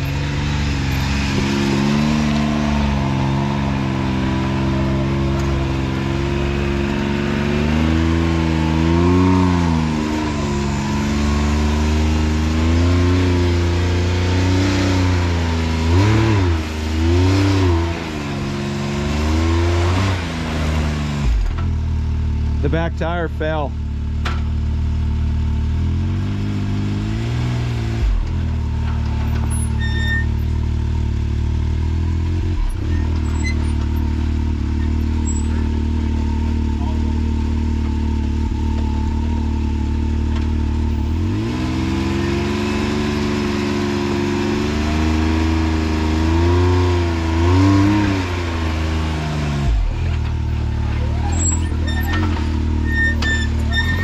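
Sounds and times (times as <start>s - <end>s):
engine idling and revving: 0.0s - 54.0s
tire slipping on rock: 49.6s - 54.0s.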